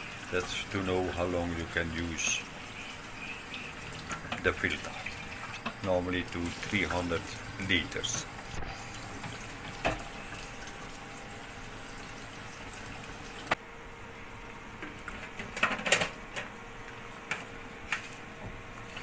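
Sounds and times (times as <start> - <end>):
tap water running into pitcher: 0.0 - 13.6.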